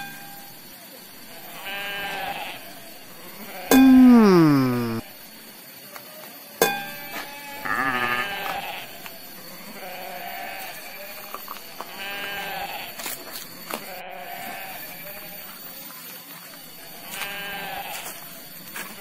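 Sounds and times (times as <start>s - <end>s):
sheep bleating: 1.6s - 2.7s, 3.4s - 5.0s, 7.2s - 9.0s, 11.9s - 12.9s, 13.8s - 15.4s, 17.0s - 18.0s.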